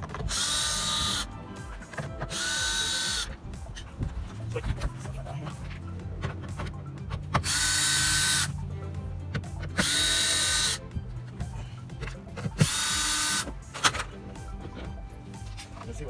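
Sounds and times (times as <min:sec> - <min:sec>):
cordless drill whining: 0:00.0 - 0:03.5, 0:07.4 - 0:08.7, 0:09.7 - 0:10.9, 0:12.0 - 0:13.9.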